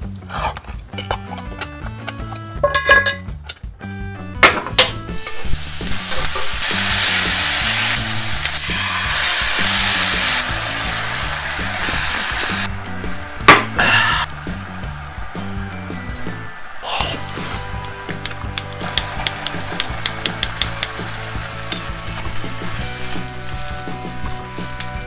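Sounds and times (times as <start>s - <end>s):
background music: 0.0s - 25.0s
pork sizzling on griddle: 5.1s - 25.0s.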